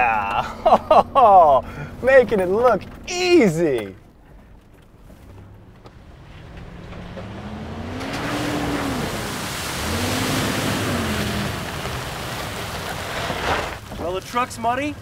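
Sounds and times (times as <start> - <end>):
tyres rolling on gravel: 0.0 - 15.0
car engine revving: 5.2 - 13.8.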